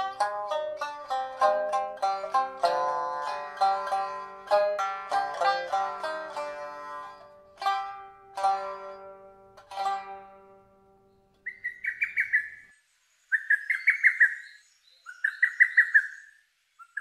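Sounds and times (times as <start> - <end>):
shamisen note: 0.0 - 11.3
cuckoo calling: 11.0 - 17.0.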